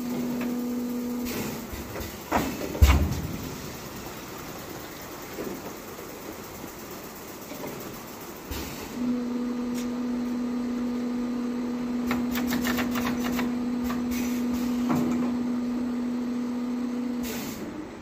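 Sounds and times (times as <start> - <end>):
machine clicks: 12.1 - 14.0.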